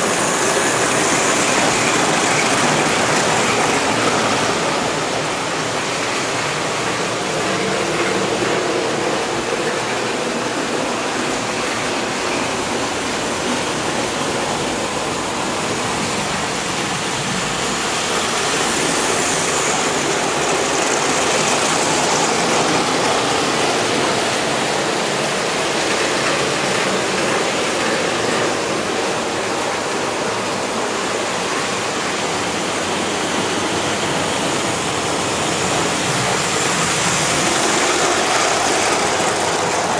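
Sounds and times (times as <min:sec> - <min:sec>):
model train wheels rolling on rail: 0:00.0 - 0:39.9.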